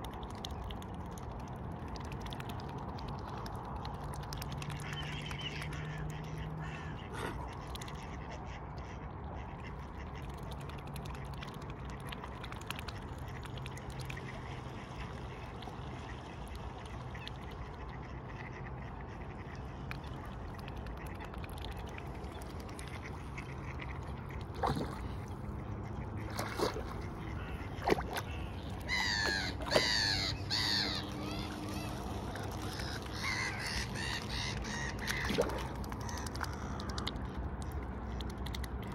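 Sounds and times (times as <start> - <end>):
waterfowl calling: 22.3 - 37.1.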